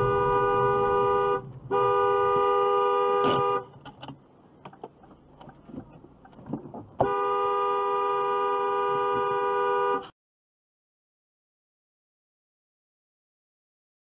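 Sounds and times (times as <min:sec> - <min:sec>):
car horn blasts: 0:00.0 - 0:03.7, 0:07.0 - 0:10.1.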